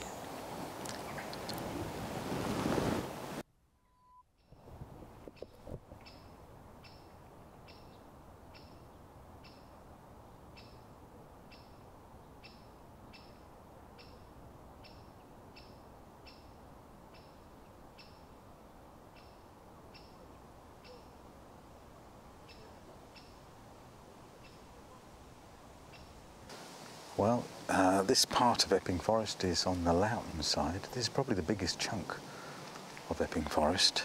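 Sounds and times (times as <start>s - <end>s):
distant road traffic rumble: 5.1s - 34.0s
small bird call notes: 5.3s - 9.8s, 10.5s - 18.4s, 19.0s - 21.3s, 22.4s - 23.4s, 24.4s - 25.1s.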